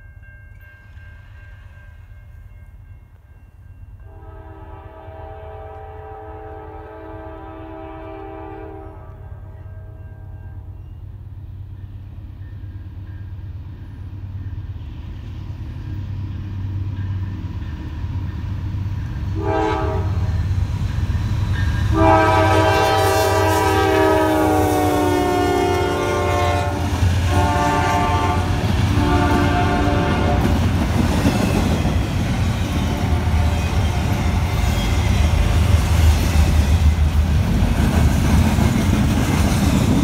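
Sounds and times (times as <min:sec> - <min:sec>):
train air horn blasts: 0:04.0 - 0:10.7, 0:19.3 - 0:20.5, 0:21.8 - 0:30.7, 0:32.8 - 0:35.7
diesel locomotive rumble: 0:10.7 - 0:40.0.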